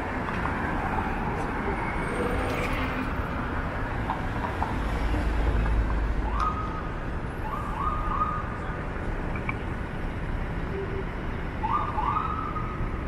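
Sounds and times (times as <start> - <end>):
city street traffic: 0.0 - 13.0
distant siren: 6.2 - 8.6, 11.6 - 13.0.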